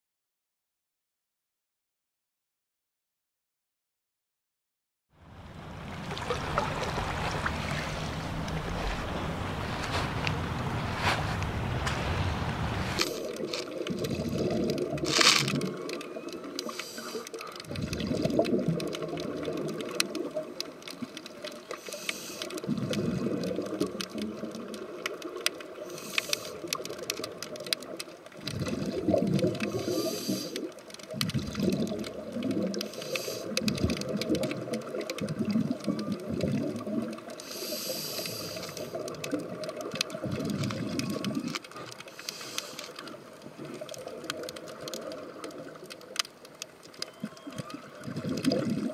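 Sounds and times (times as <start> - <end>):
underwater bubbling: 5.2 - 48.9.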